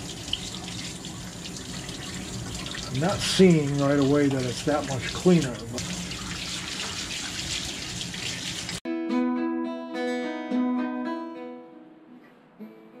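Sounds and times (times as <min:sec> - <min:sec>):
tap water running into sink: 0:00.0 - 0:08.8
plucked-string music: 0:08.9 - 0:13.0.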